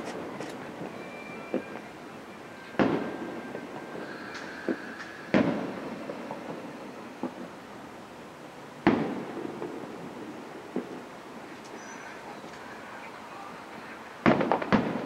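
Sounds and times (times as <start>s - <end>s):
faint firework thuds: 0.0s - 7.7s, 8.8s - 15.0s
firework booms with echo: 2.6s - 7.6s, 8.8s - 12.9s, 13.8s - 15.0s.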